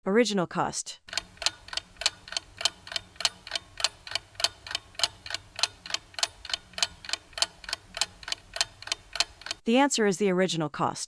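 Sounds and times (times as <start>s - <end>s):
rapid clock ticking: 1.1s - 9.6s.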